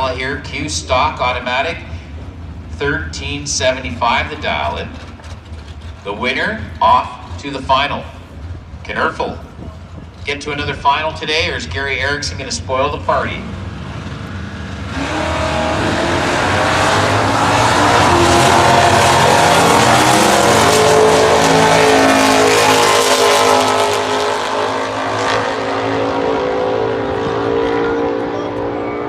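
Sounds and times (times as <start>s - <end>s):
drag cars accelerating at full throttle: 0.0s - 29.0s.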